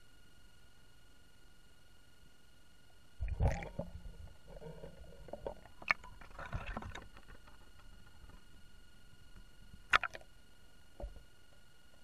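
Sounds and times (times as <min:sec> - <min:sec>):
water splashing and sloshing: 0:03.2 - 0:10.3.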